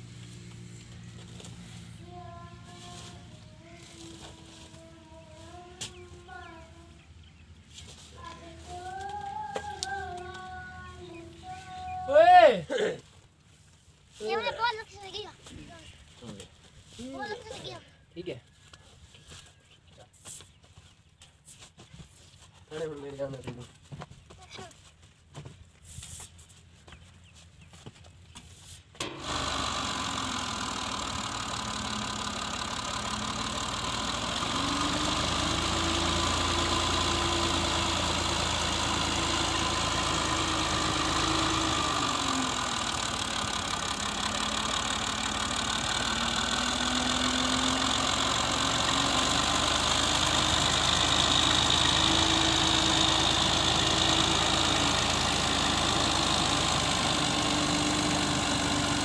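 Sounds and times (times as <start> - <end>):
tractor diesel engine running: 0.0 - 12.5, 29.0 - 59.0.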